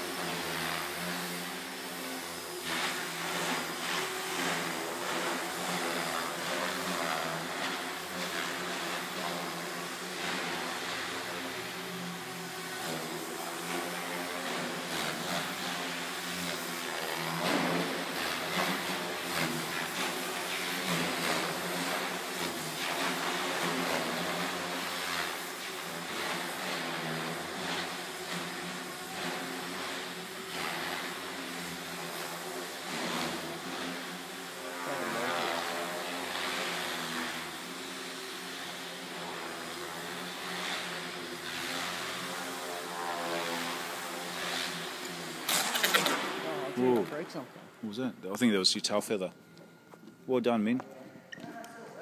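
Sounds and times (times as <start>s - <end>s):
rotor blades rushing: 0.0s - 49.2s
electric motor whine: 0.0s - 52.0s.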